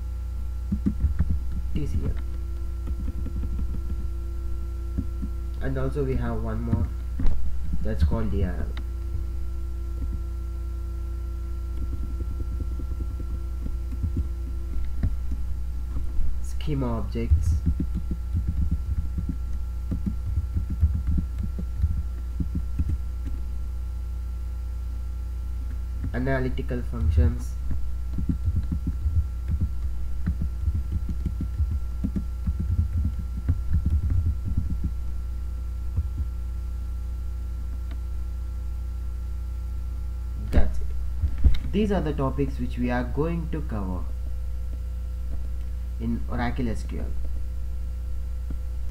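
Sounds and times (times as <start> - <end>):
faint high whine: 0.0 - 48.9
low electrical hum: 0.0 - 48.9
computer keyboard typing: 0.7 - 4.1, 11.7 - 15.5, 17.3 - 23.5, 27.2 - 34.9
soft low knocks: 17.3 - 23.4, 35.9 - 36.4.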